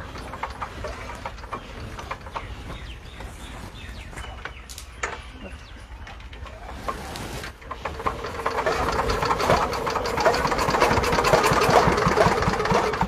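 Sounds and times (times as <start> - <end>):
diesel engine knocking: 0.0 - 2.9, 7.8 - 13.0.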